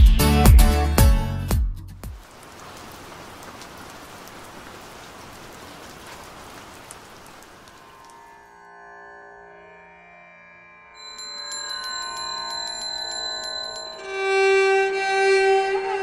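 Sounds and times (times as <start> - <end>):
steady rain: 2.1 - 8.5.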